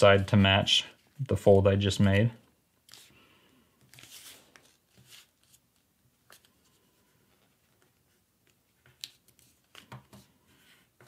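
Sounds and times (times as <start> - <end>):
paper rustling and tapping: 7.7 - 10.4.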